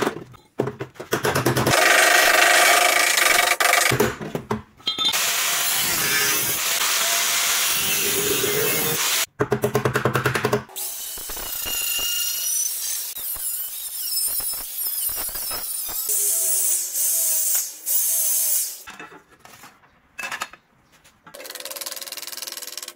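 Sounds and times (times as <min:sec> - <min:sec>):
angle grinder whining on metal: 0:05.1 - 0:09.3, 0:10.8 - 0:17.3
electric drill boring steel: 0:05.1 - 0:09.3, 0:10.8 - 0:18.8.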